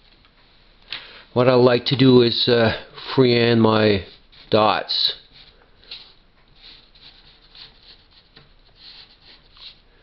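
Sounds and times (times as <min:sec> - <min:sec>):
pencil scratching on paper: 0:04.0 - 0:09.8.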